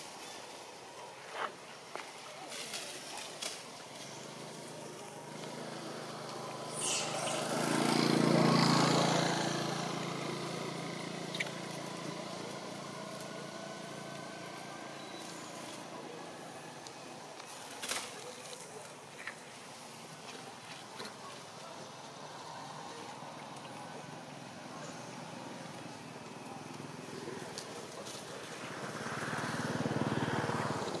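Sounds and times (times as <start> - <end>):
vehicle engine passing by: 3.9 - 17.2, 21.9 - 31.0.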